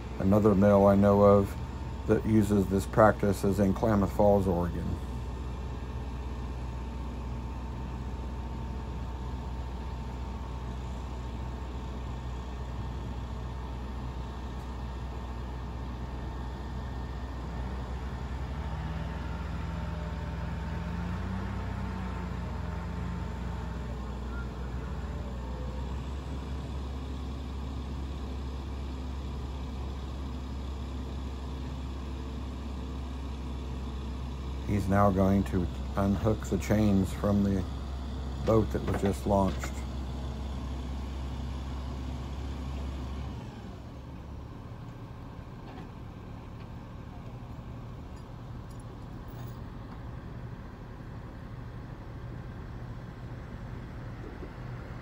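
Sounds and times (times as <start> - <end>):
engines droning: 0.0 - 55.0.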